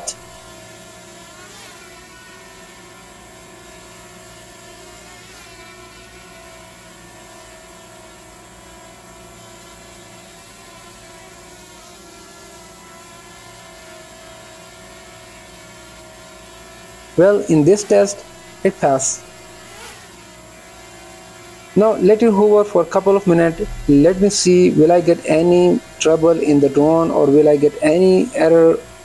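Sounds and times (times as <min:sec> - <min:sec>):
drone motors whirring: 0:23.2 - 0:24.8.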